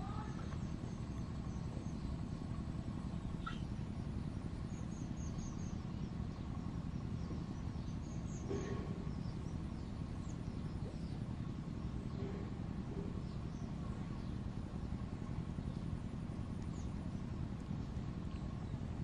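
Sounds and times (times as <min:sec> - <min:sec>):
faint high bird chirps: 0:00.0 - 0:14.4
faint hum: 0:00.0 - 0:19.0.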